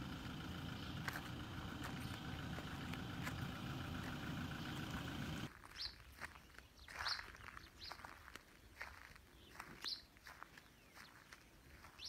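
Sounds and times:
engine idling: 0.0 - 5.5.

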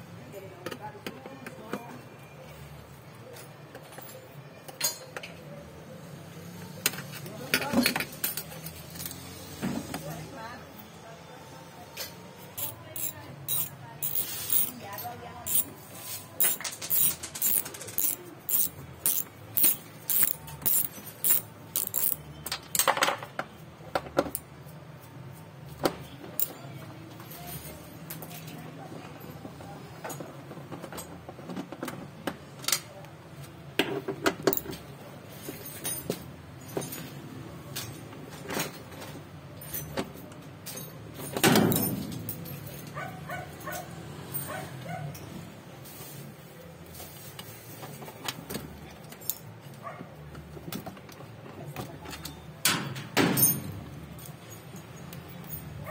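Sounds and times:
ratchet wrench clicking: 12.6 - 14.7, 15.4 - 15.7, 16.4 - 22.2.

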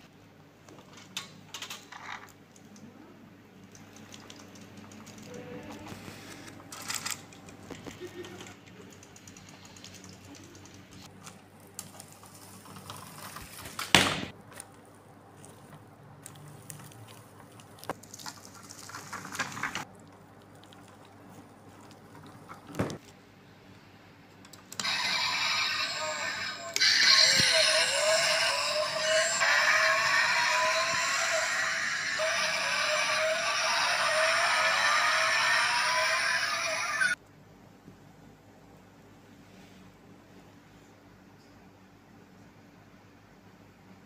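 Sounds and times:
toy electronic sound: 24.8 - 37.2.

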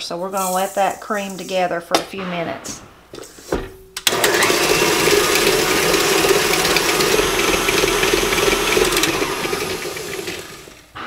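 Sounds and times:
stand mixer running: 4.1 - 11.0.

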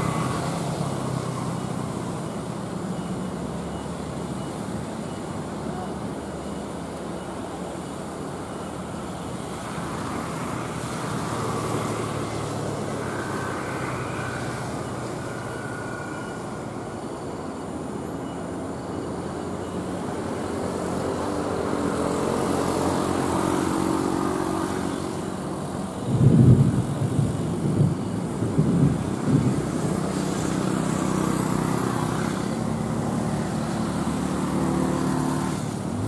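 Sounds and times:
passing traffic: 0.0 - 36.0
truck diesel engine labouring: 0.0 - 36.0.

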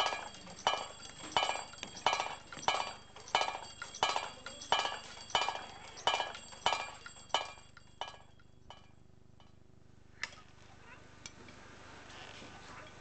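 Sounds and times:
small brass bells ringing: 0.0 - 9.6.

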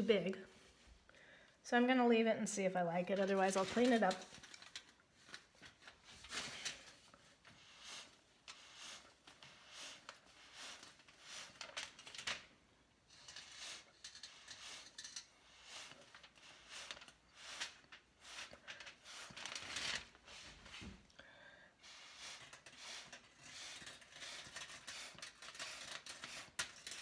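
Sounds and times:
breath puffs through a straw: 7.6 - 11.7, 21.2 - 25.8.

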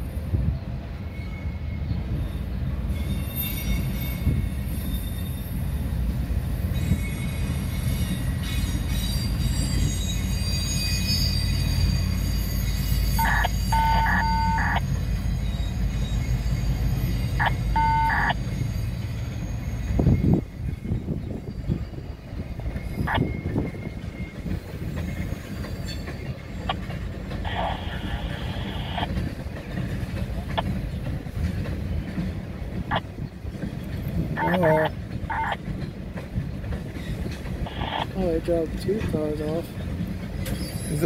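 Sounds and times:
train wheels rumbling on rail: 0.0 - 41.0
high pulsing beeps: 13.2 - 14.8, 17.3 - 18.4.

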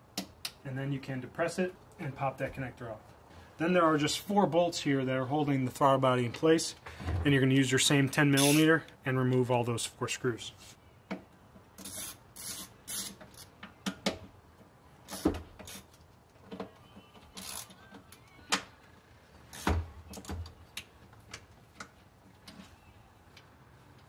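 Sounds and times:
ratchet clicking: 11.8 - 13.5, 17.4 - 17.8.

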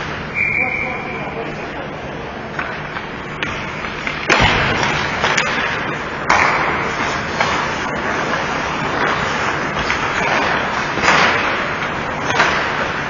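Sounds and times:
steady rink noise: 0.0 - 13.0
sharp bangs in ice rink: 4.2 - 13.0.

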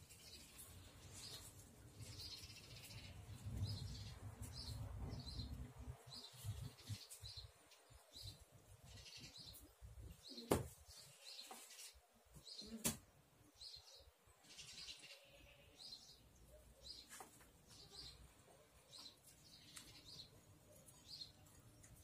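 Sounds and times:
bird chirping: 13.5 - 22.0.

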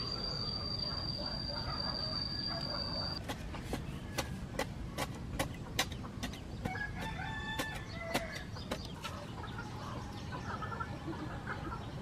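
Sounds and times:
chickens clucking: 4.1 - 12.0
rooster crowing: 6.7 - 8.4.

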